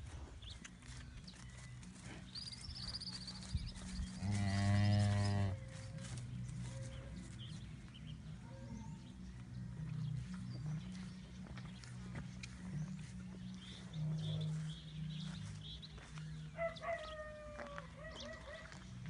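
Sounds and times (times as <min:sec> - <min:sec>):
cow mooing: 0:04.2 - 0:05.6.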